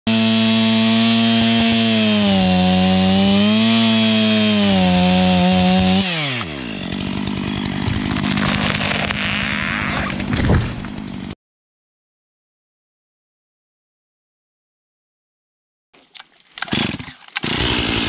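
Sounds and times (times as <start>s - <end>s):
chainsaw cutting through tree trunk: 0.1s - 11.4s, 16.6s - 18.0s
tree trunk creaking and cracking: 5.7s - 11.3s, 16.6s - 18.0s.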